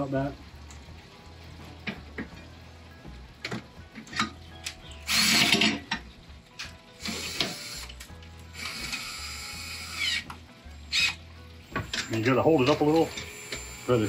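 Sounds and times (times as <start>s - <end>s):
cordless drill spinning: 5.1s - 5.6s, 7.0s - 7.9s, 8.6s - 10.2s, 10.9s - 11.2s, 11.8s - 14.0s
drill clicks: 5.1s - 5.8s, 7.0s - 8.0s, 8.6s - 10.3s, 12.9s - 13.9s.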